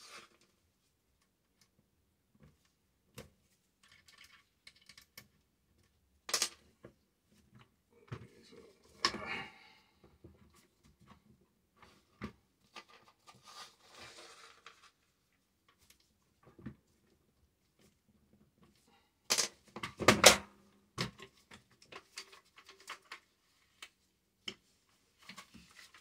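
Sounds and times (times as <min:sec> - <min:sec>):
small metallic clicks and scrapes: 0:03.8 - 0:06.7, 0:21.1 - 0:24.6
rubbing and sliding: 0:13.0 - 0:15.0.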